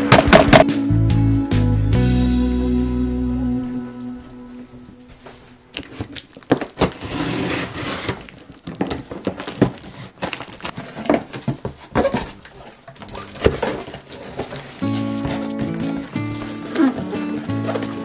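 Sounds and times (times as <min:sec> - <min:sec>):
crinkling: 0:05.0 - 0:18.0
cardboard scraping and rustling: 0:05.4 - 0:18.0.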